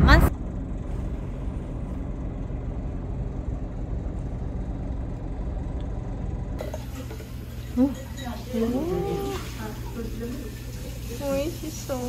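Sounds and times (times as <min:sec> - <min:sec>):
road and engine rumble in car: 0:00.0 - 0:06.6.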